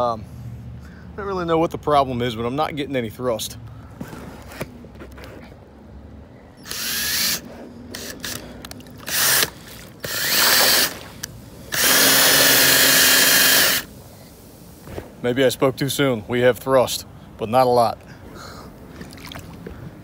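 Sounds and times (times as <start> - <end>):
cordless drill spinning: 6.6 - 13.9
paddle churning water: 8.8 - 13.8, 18.1 - 20.0.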